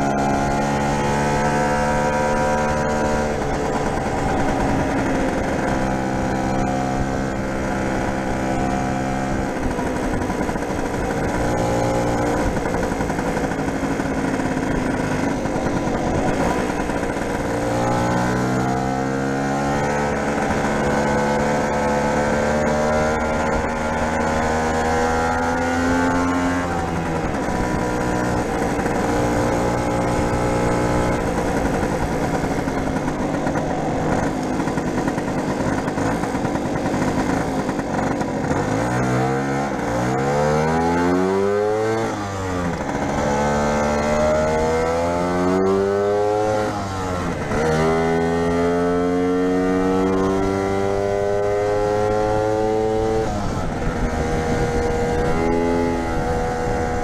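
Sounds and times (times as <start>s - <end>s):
two-stroke scooter engine revving: 0.0s - 57.0s.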